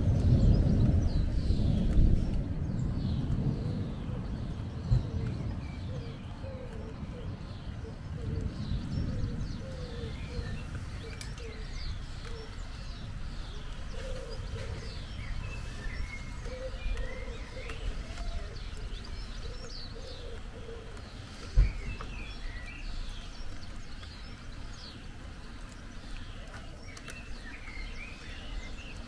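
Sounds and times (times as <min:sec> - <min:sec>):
low background noise: 0:00.0 - 0:29.0
small birds chirping: 0:00.0 - 0:29.0
pigeons cooing: 0:03.0 - 0:23.0.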